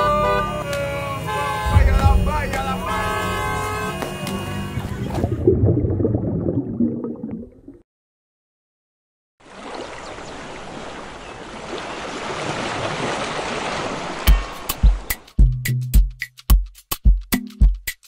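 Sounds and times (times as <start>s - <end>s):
ocean surf rushing: 1.6s - 3.7s
muffled low rumble: 1.7s - 3.6s.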